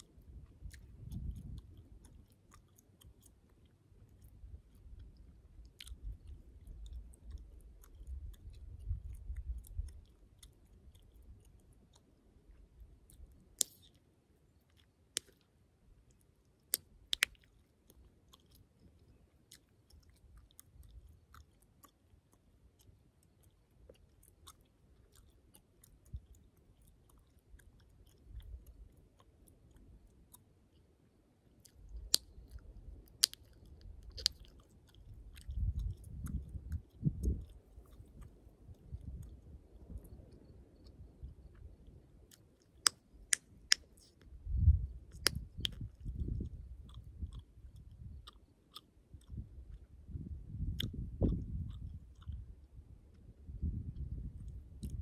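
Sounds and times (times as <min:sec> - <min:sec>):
gum chewing: 0:00.0 - 0:55.0
gum pops: 0:00.2 - 0:03.4, 0:13.1 - 0:14.0, 0:14.7 - 0:15.5, 0:16.6 - 0:18.6, 0:31.6 - 0:41.7, 0:42.3 - 0:44.3, 0:45.1 - 0:52.5.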